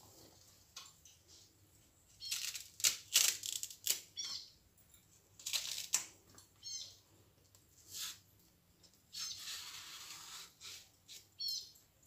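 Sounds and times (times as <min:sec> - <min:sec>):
plantain skin ripping: 0:02.2 - 0:04.1, 0:05.4 - 0:06.1.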